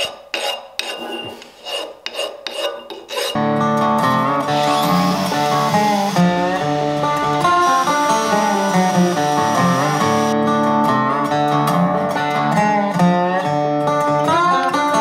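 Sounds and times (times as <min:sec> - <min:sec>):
guitar background music: 0:03.4 - 0:15.0.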